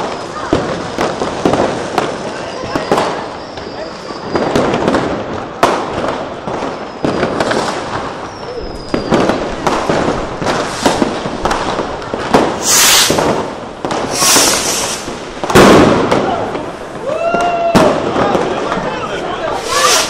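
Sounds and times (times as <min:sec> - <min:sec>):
firecrackers banging: 0:00.0 - 0:20.0
loud hissing bursts: 0:10.6 - 0:11.2, 0:12.5 - 0:15.3, 0:19.5 - 0:20.0
rocket falling whistle: 0:12.6 - 0:13.3, 0:14.1 - 0:15.1.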